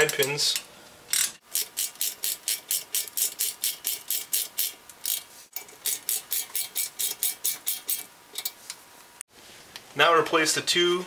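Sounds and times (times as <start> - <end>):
hand ratchet clicking: 1.1 - 8.6.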